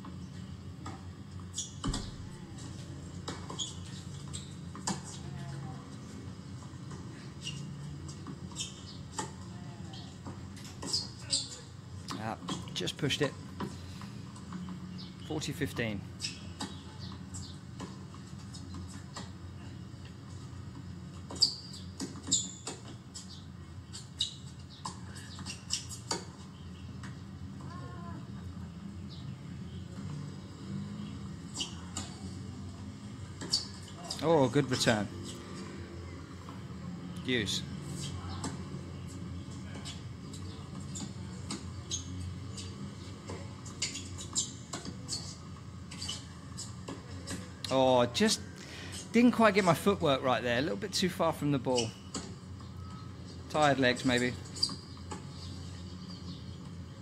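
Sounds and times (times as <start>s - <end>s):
shoes squeaking on court: 0.0s - 28.1s, 29.1s - 57.0s
ball bouncing: 1.8s - 2.7s.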